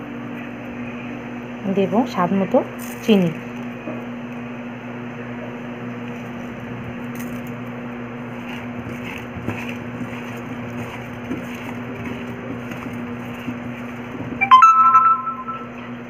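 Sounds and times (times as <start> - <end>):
background hum and hiss: 0.0 - 16.0
fruit squishing in a bowl: 6.0 - 14.4.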